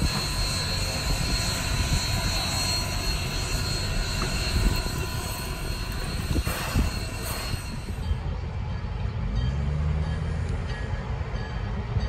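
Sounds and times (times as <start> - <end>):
steam hiss: 0.0 - 8.1
faint high whine: 0.0 - 8.4.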